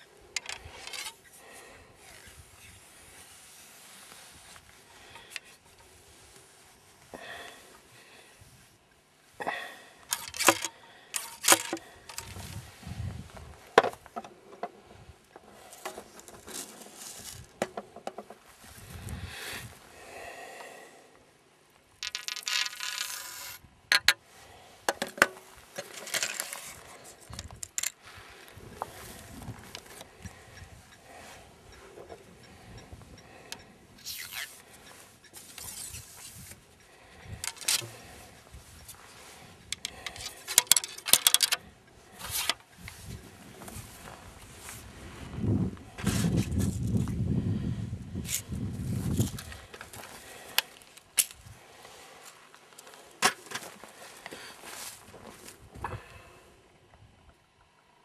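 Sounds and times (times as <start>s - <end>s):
tools clicking and knocking: 0.4s - 1.2s, 10.1s - 12.3s, 22.0s - 24.2s, 37.4s - 37.9s, 39.7s - 41.6s
ramrod scraping inside gun barrel: 0.4s - 1.4s, 10.1s - 12.5s, 22.0s - 24.1s, 24.9s - 28.0s, 37.4s - 39.0s, 39.6s - 41.6s, 42.2s - 43.0s.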